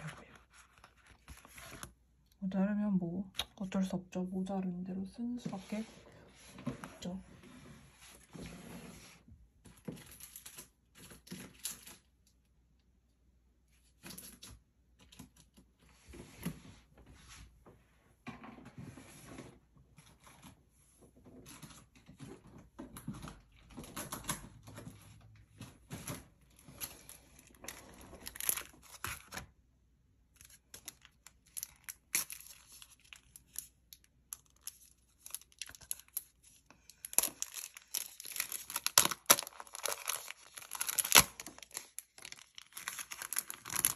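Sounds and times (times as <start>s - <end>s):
plastic pouch and stickers crinkling: 0.0s - 2.0s, 26.5s - 29.4s, 30.3s - 43.9s.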